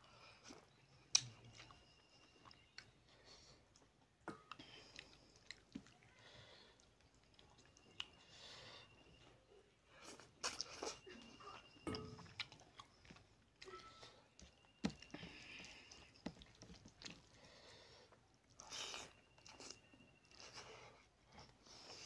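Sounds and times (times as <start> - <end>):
person chewing: 0.3 - 3.0, 3.6 - 8.4, 9.9 - 22.0
lip smacks: 0.5 - 1.8.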